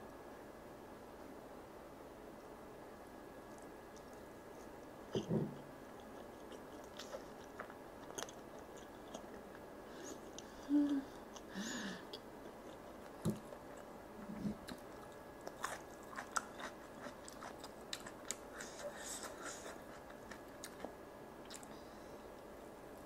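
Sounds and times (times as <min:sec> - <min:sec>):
close-miked chewing: 0:03.4 - 0:11.5, 0:12.1 - 0:21.8.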